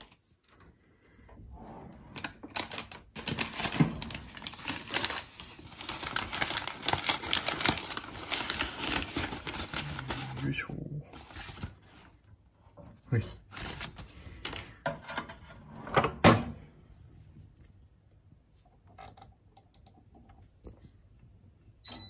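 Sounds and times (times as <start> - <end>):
paper bag crinkling: 2.2 - 12.1, 13.4 - 14.8.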